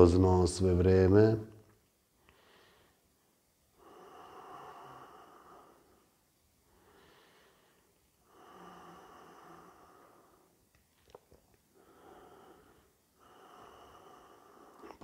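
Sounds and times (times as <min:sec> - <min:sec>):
man breathing through nose: 0:02.2 - 0:03.2, 0:03.8 - 0:10.6, 0:11.7 - 0:14.9.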